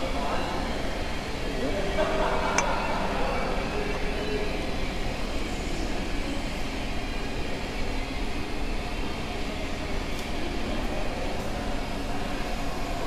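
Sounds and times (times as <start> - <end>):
low rumbling fan noise: 0.0 - 13.0.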